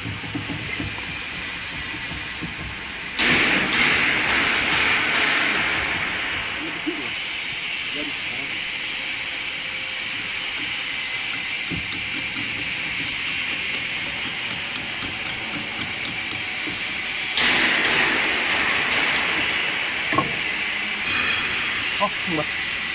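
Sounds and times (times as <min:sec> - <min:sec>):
loud hissing rush: 0:00.0 - 0:22.9
metal tool clicks and taps: 0:11.3 - 0:16.8.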